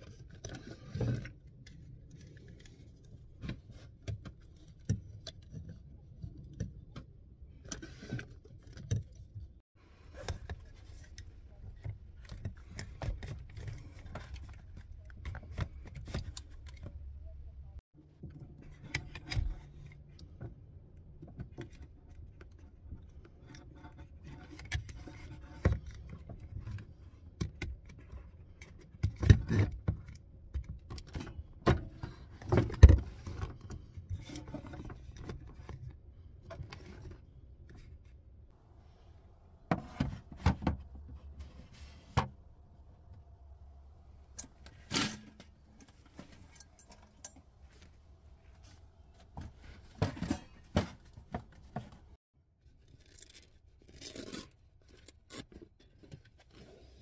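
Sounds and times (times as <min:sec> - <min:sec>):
plastic parts clicking and rattling: 0:10.1 - 0:17.3.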